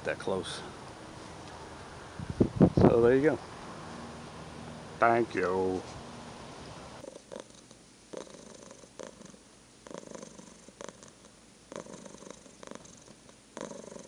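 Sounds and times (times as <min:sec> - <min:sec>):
cat purring: 0:07.0 - 0:14.0.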